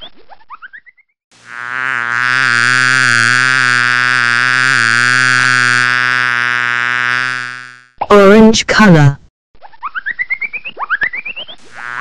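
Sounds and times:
buzzy synthesized tone: 1.4s - 7.9s, 11.6s - 12.0s.

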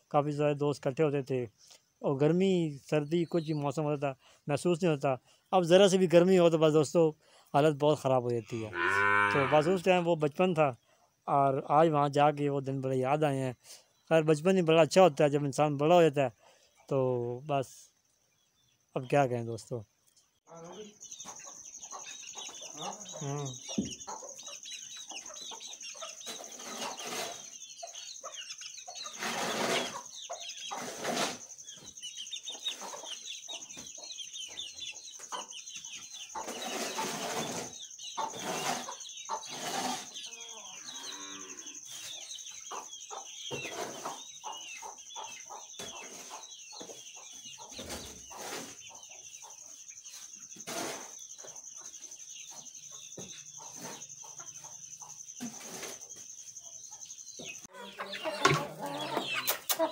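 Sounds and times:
chickens clucking: 20.5s - 59.9s
shovel scraping concrete floor: 26.3s - 27.5s, 29.1s - 30.0s, 30.6s - 31.4s, 36.5s - 40.2s, 50.6s - 51.2s.

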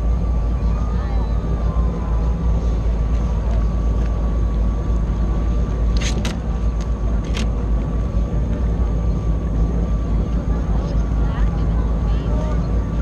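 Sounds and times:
watercraft engine drone and whine: 0.0s - 13.0s.

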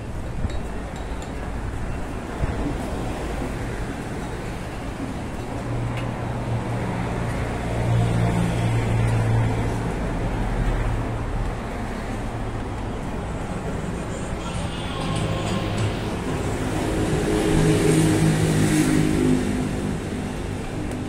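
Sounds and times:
road traffic noise: 0.0s - 21.0s
vehicle engine hum: 2.6s - 21.0s.

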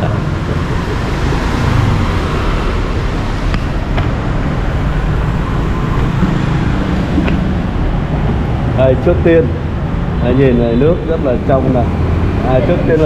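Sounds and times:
vehicles passing: 0.0s - 13.0s.

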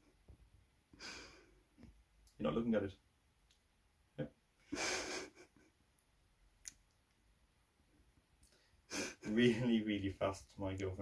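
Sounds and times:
person laughing breathily: 4.7s - 5.7s, 8.9s - 9.7s.

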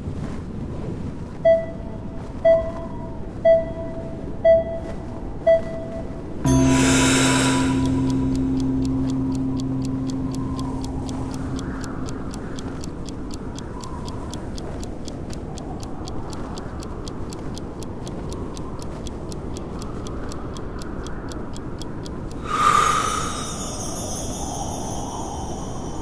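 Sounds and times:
snowstorm wind: 0.0s - 26.0s
rapid even ticking: 6.5s - 26.0s.

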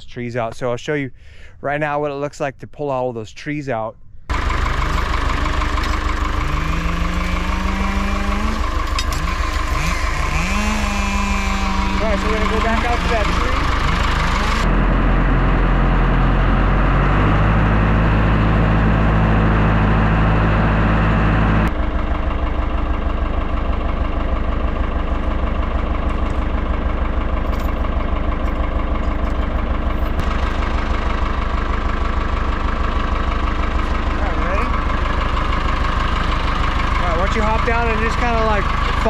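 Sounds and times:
tractor engine running: 4.0s - 39.0s.

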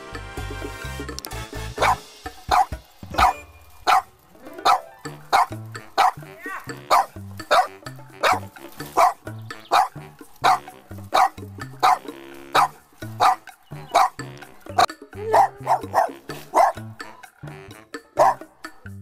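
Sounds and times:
background music with bass line: 0.0s - 19.0s
small dog barking: 1.8s - 14.2s, 14.8s - 16.8s, 18.2s - 18.5s.

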